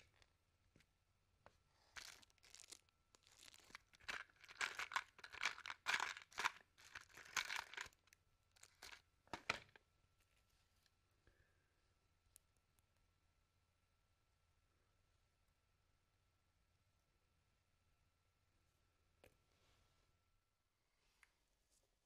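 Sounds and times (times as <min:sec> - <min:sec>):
plastic bag crinkling: 0:02.0 - 0:09.7.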